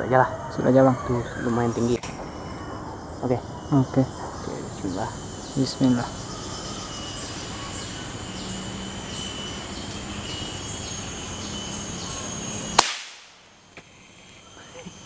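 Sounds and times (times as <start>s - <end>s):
cicadas and crickets chirping: 0.0s - 15.0s
air rifle shot: 12.8s - 13.3s.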